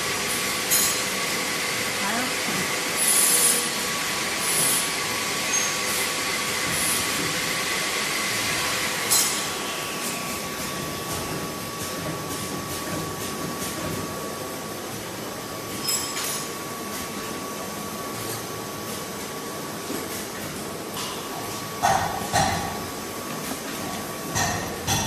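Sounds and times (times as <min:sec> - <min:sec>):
screen printer mechanical whir: 0:00.0 - 0:15.9.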